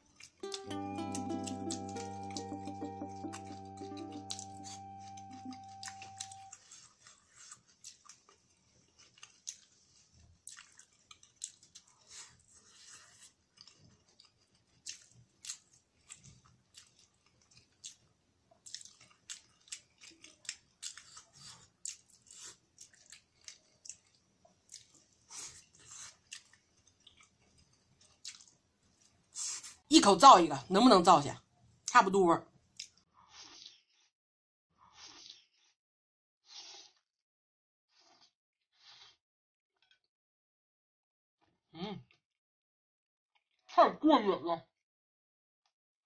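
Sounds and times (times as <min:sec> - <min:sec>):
person chewing: 0:00.0 - 0:29.8, 0:32.8 - 0:33.8, 0:34.8 - 0:35.6, 0:38.0 - 0:39.2.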